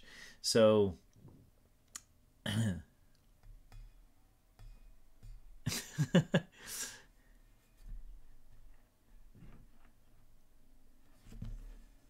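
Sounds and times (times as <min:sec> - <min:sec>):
man laughing: 0:05.6 - 0:07.0.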